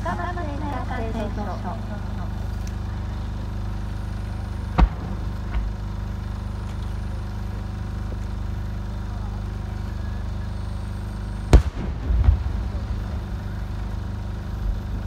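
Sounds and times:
steady low hum: 0.0 - 15.0
firework bang: 4.7 - 6.3, 11.5 - 15.0
loud firework boom: 4.7 - 6.3, 11.5 - 15.0
small firework pop: 4.8 - 5.8.

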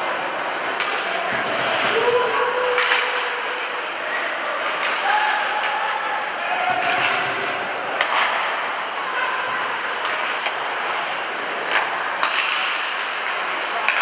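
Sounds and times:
skates scraping on ice: 0.0 - 5.3, 5.9 - 14.0
hockey sticks and puck clacking: 0.0 - 14.0
players shouting: 0.8 - 10.4.

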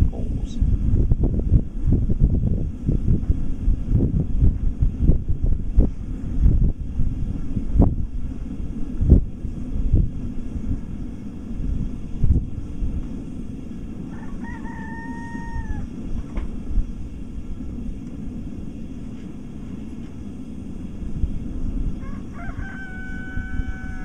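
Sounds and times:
steady low rumble: 0.0 - 24.0
rooster crowing: 14.0 - 15.9, 21.9 - 24.0.

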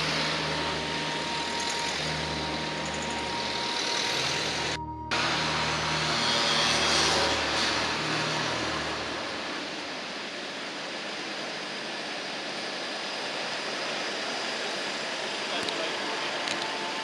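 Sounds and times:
vehicle engine humming: 0.0 - 11.8.

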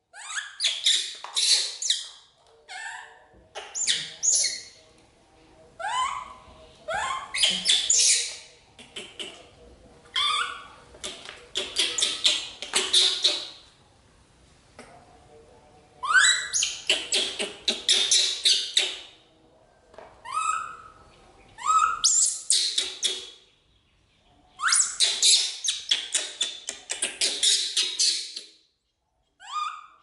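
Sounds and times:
baby monkey screaming: 5.8 - 8.4, 10.1 - 10.7, 16.0 - 18.8, 20.2 - 21.0, 21.6 - 22.8, 24.6 - 25.8, 29.4 - 30.0.

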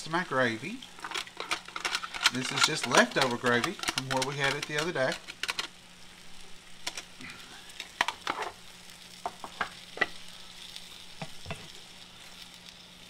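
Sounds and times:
faint food sizzling: 0.0 - 13.0
spatula stirring in skillet: 0.8 - 5.8, 6.6 - 13.0.

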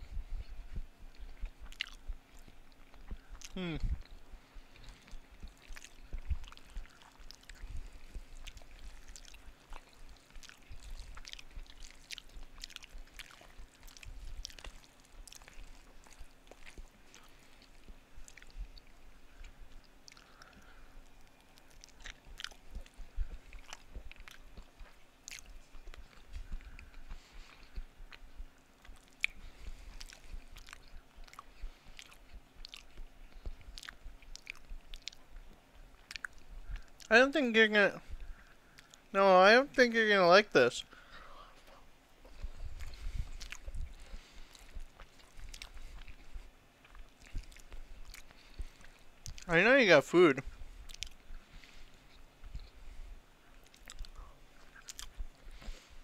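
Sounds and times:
person chewing food: 0.0 - 37.1, 38.0 - 39.1, 40.8 - 49.5, 50.4 - 56.0
mouth clicks: 0.4 - 37.2, 42.2 - 49.5, 50.1 - 52.8, 53.6 - 56.0.

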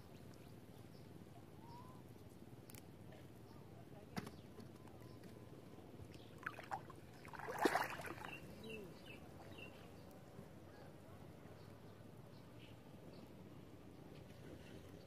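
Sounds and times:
water splashing: 6.4 - 8.5.

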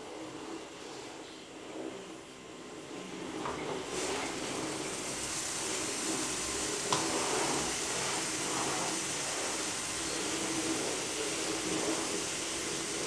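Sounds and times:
gas burner hissing: 0.0 - 13.0.

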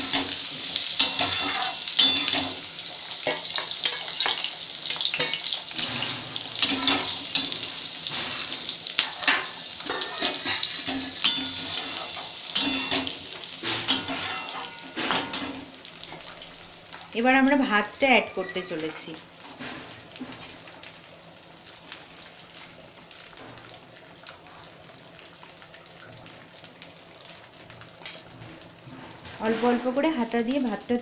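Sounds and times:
metal spatula scraping pan: 0.0 - 15.6
food sizzling in hot oil: 0.0 - 31.0.

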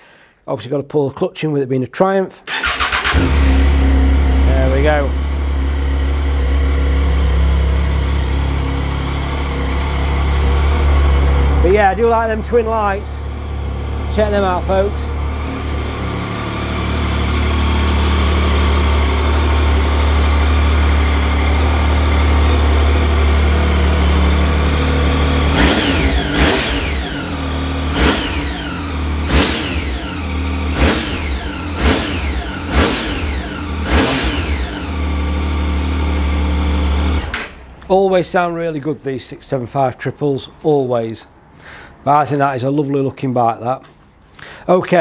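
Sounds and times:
motorcycle engine idling and revving: 2.5 - 37.7.

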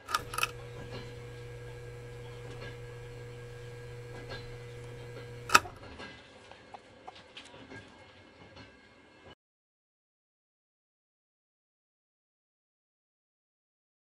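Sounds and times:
sharp click: 0.0 - 5.9.

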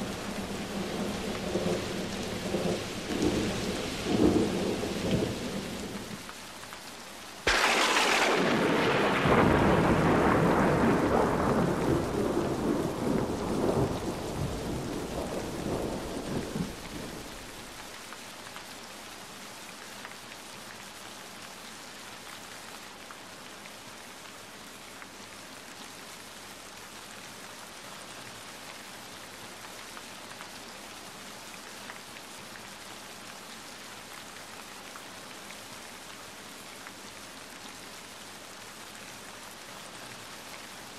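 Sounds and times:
steady rain falling: 0.0 - 40.9
thunder clap rumbling: 7.5 - 17.8.

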